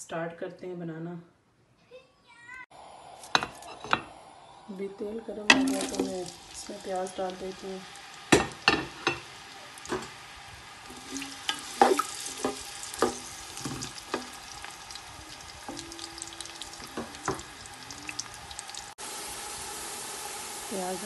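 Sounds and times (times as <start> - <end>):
onions sizzling in oil: 4.9 - 21.0.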